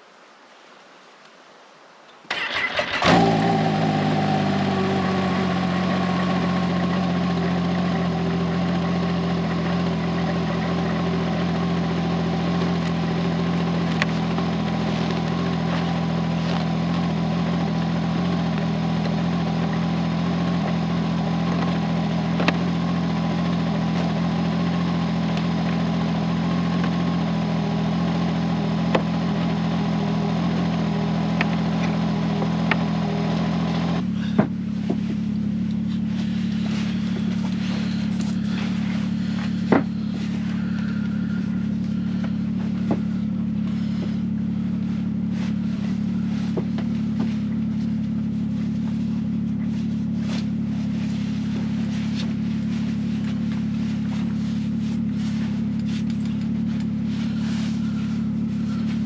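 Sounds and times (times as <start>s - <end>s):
snowmobile engine starting and idling: 2.3s - 59.0s.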